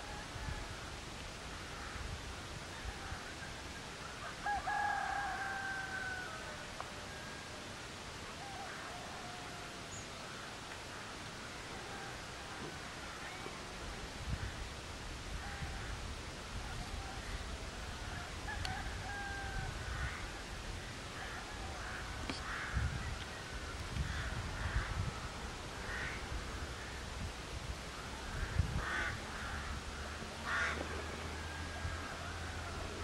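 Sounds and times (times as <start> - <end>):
faint birds calling: 5.6 - 27.2, 27.9 - 33.0
crows cawing: 19.0 - 20.4, 21.1 - 23.0, 24.0 - 25.1, 25.8 - 26.9, 28.2 - 32.8.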